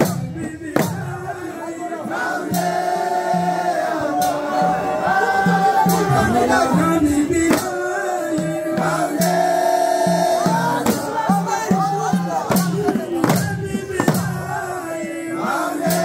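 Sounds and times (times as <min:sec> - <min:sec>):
sharp percussive strike: 0:00.0 - 0:01.2, 0:10.5 - 0:11.4, 0:12.1 - 0:14.4
men chanting devotional song: 0:00.0 - 0:16.0.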